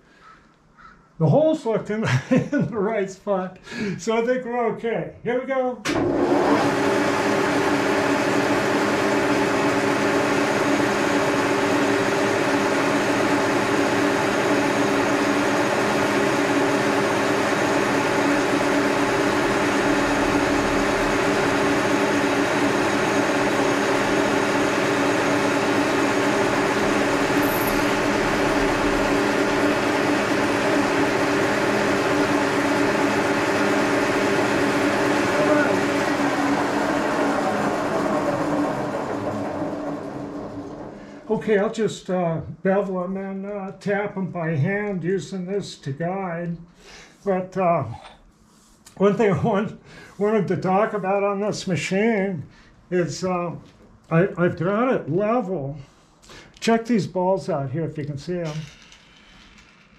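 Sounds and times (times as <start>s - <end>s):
milling machine humming: 5.9s - 41.5s.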